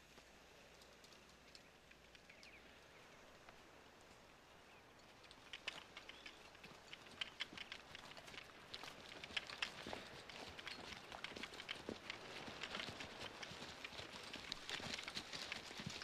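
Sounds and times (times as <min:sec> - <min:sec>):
faint woodland ambience: 0:00.0 - 0:16.0
light crackling ticks: 0:00.1 - 0:02.7, 0:05.0 - 0:16.0
soft bird chirps: 0:01.5 - 0:03.4, 0:05.9 - 0:06.6.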